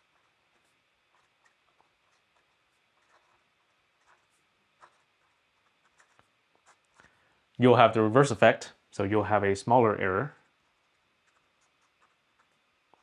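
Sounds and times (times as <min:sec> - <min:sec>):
pen nib scratching paper: 0:00.0 - 0:07.1, 0:10.3 - 0:13.0.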